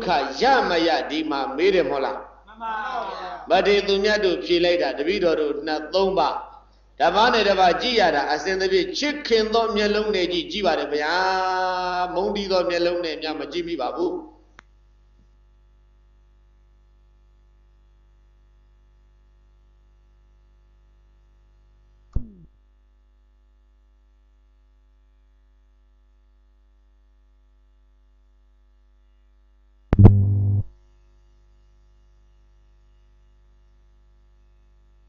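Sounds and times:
low mains hum: 0.0s - 35.0s
brief low-pitched burst: 30.0s - 30.7s
short falling blip: 30.0s - 30.7s.

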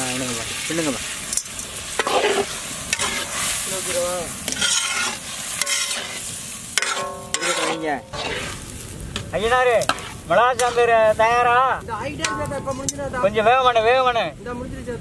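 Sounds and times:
curry sizzling: 0.0s - 14.2s
metal ladle scraping pan: 0.6s - 8.7s, 9.8s - 11.0s.

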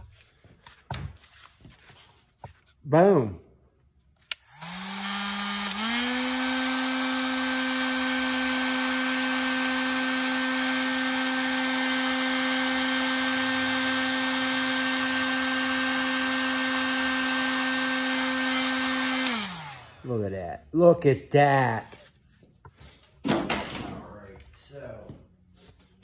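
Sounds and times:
heat gun fan humming: 4.2s - 20.6s.

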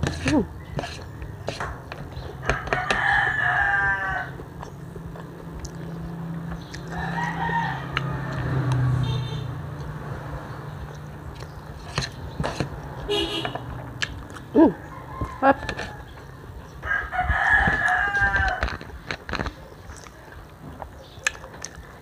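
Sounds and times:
spoons scraping foil tray: 0.0s - 2.9s, 11.8s - 12.7s
rooster crowing: 2.4s - 4.4s, 6.9s - 8.8s, 14.8s - 16.1s, 16.8s - 18.8s.

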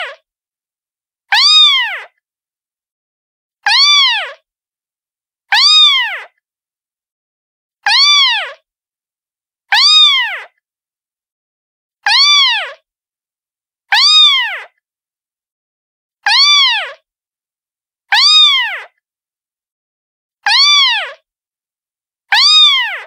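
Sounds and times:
cat meowing: 1.3s - 2.2s, 3.7s - 4.4s, 5.5s - 6.4s, 7.9s - 8.6s, 9.7s - 10.6s, 12.1s - 12.8s, 13.9s - 14.7s, 16.3s - 17.0s, 18.1s - 18.9s, 20.4s - 21.2s, 22.3s - 23.0s.

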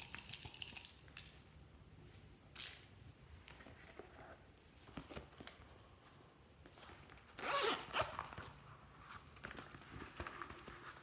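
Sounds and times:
zipper pulled open: 7.4s - 8.4s.

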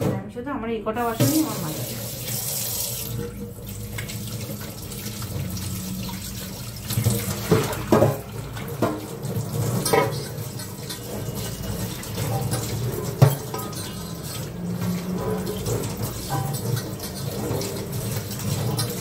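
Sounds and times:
tap water running into sink: 1.0s - 19.0s
dishes clanking together: 7.0s - 19.0s.

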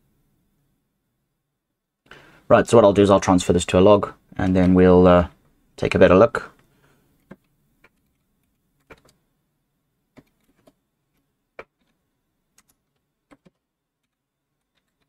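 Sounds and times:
computer keyboard keystrokes: 12.6s - 15.0s.

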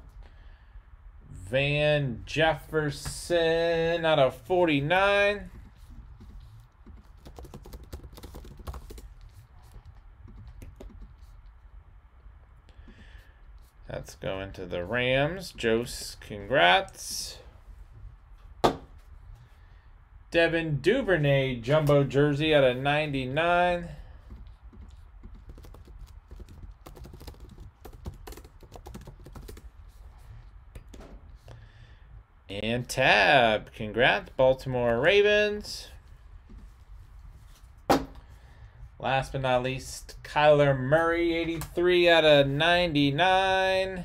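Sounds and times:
low steady hum: 0.0s - 44.0s
keyboard typing: 5.5s - 11.4s, 24.2s - 30.0s.

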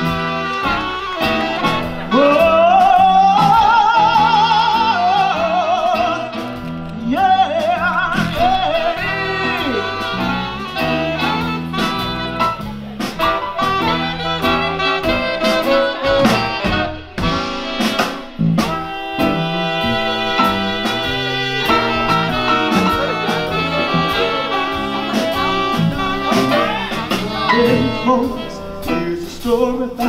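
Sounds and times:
jazz band playing: 0.0s - 30.0s
man singing with vibrato: 2.0s - 11.4s, 19.2s - 30.0s.

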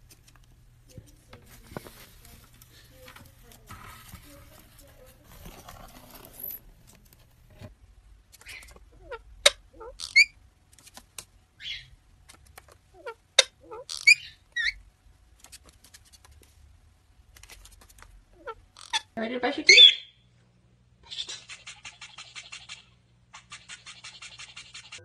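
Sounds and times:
faint rustling: 0.0s - 7.8s
parakeets chirping: 8.4s - 10.4s, 11.6s - 12.0s, 12.9s - 14.8s, 18.4s - 20.3s, 21.0s - 25.0s.

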